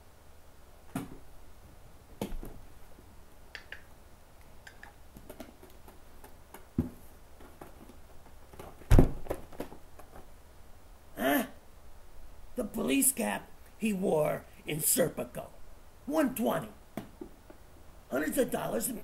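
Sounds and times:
handling knocks and clicks: 4.6s - 10.3s
loud thump: 8.9s - 9.4s.

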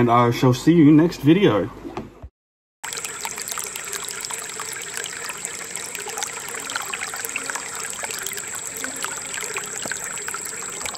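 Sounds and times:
aquarium air stone bubbling: 2.8s - 10.9s.

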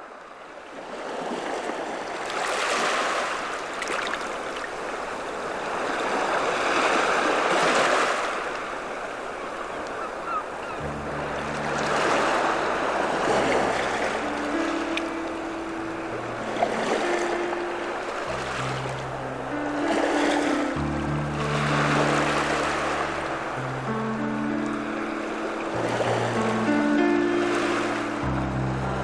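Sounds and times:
rushing surf-like noise: 2.0s - 29.0s
low musical drone: 10.8s - 29.0s.

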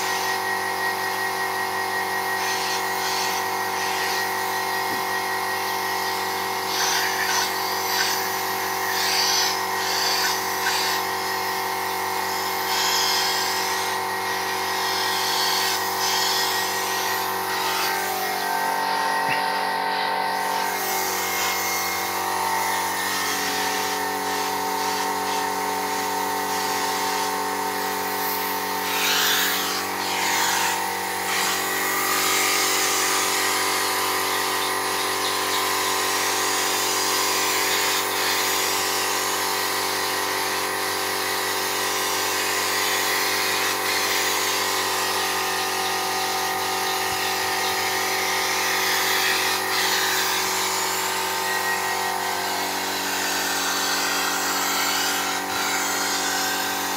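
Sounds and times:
air compressor motor hum: 0.0s - 56.9s
spray gun hissing: 5.7s - 14.0s, 20.4s - 39.2s.

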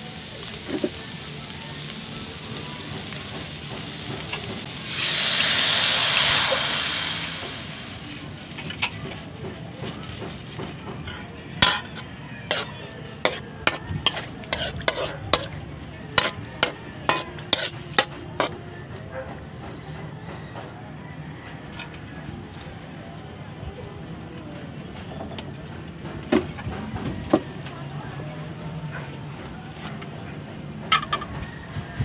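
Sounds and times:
liquid sizzling in hot wok: 0.0s - 9.2s, 10.4s - 18.5s.

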